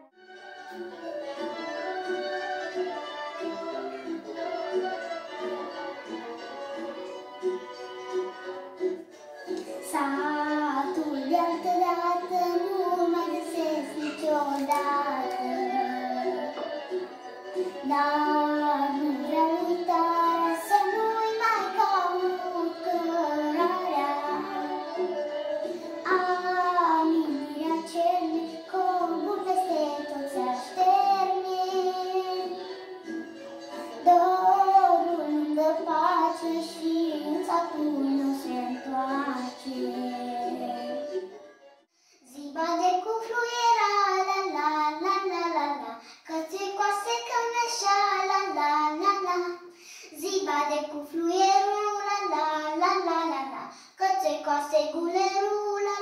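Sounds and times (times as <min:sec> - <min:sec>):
girl singing into microphone: 0:09.5 - 0:32.8, 0:33.7 - 0:41.2, 0:42.2 - 0:56.0.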